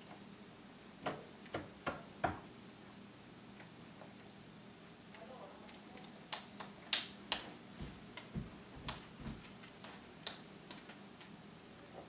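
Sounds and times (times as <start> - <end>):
toddler's hands clapping: 6.3 - 7.5.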